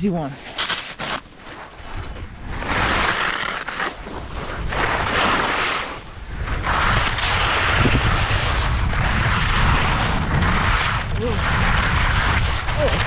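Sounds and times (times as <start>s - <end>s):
skis scraping on hard snow: 0.4s - 13.0s
wind buffeting microphone: 4.2s - 13.0s.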